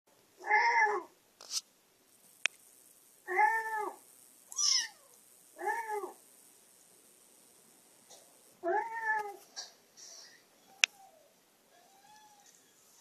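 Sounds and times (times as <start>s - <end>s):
kitten meowing through speaker: 3.3s - 5.0s.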